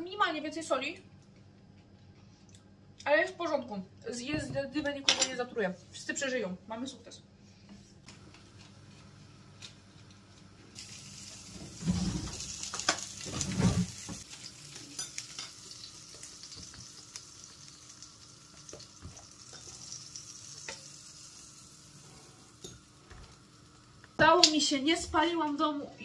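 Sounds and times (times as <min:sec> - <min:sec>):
pancakes sizzling in frying pan: 0:10.7 - 0:24.2.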